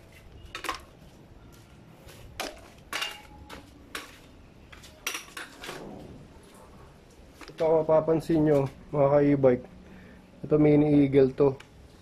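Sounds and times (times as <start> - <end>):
metal tools clinking and clanking: 2.4 - 5.8.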